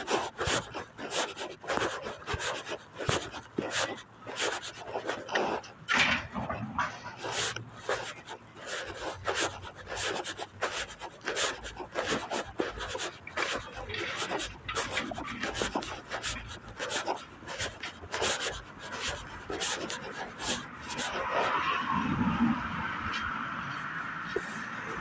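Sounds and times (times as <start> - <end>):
scratching on phone microphone: 0.0 - 22.4, 24.2 - 25.0.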